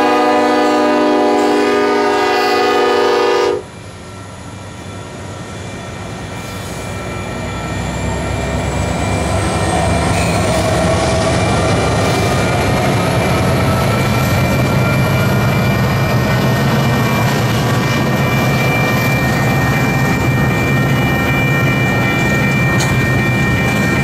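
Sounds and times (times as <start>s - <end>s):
locomotive air horn chord: 0.0s - 3.7s
rumble of passing freight train: 0.0s - 24.0s.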